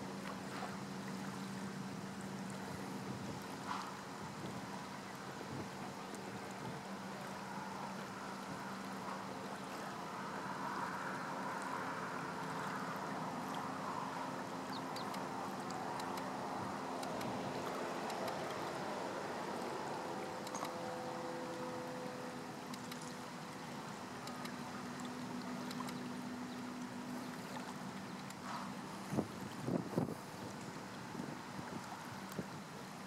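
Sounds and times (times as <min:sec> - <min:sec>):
low engine-like hum: 0:00.0 - 0:33.0
shoreline wash of noise: 0:00.0 - 0:33.0
faint clicks: 0:14.7 - 0:16.3, 0:17.0 - 0:18.7, 0:20.4 - 0:20.8, 0:24.2 - 0:28.8.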